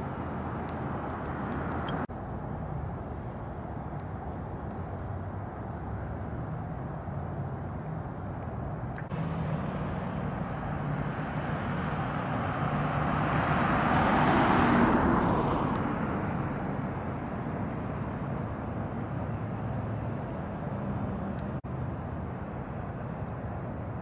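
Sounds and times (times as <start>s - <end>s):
distant traffic hum: 0.0s - 24.0s
vehicle passing by: 9.1s - 22.4s.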